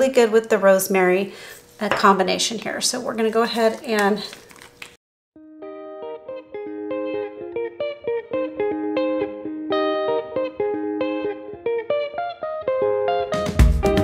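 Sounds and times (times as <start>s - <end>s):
guitar picking a melody: 5.4s - 14.0s.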